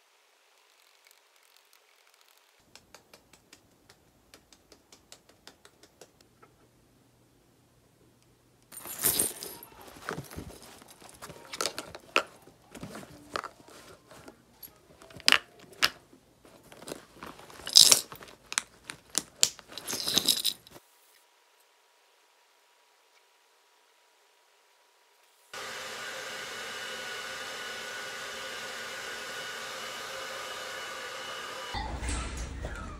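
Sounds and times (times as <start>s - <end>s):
chain strap clinking: 8.7s - 11.6s, 17.6s - 18.3s, 19.6s - 20.8s
makeup cases clicking and tapping: 11.1s - 14.3s, 15.0s - 16.0s.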